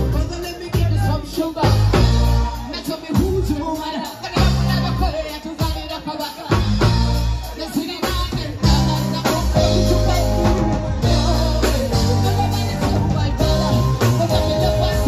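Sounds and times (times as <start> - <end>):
bass guitar: 0.0 - 15.0
drum kit beat: 0.0 - 15.0
woman singing lead: 1.9 - 15.0
backing singers: 6.5 - 15.0.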